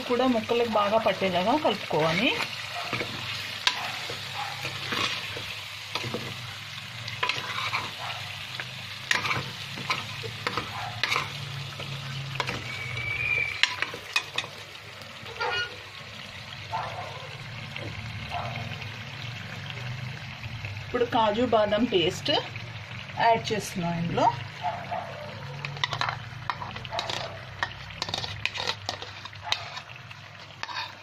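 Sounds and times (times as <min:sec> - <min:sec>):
chicken sizzling in a pot: 0:00.0 - 0:31.0
steel spoon scraping a pot: 0:07.2 - 0:08.0, 0:09.1 - 0:14.6, 0:15.3 - 0:15.8, 0:25.6 - 0:31.0.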